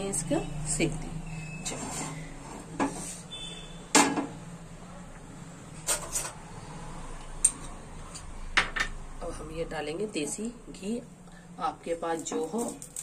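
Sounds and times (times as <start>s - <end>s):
cookware knocking and clinking: 8.6s - 9.0s.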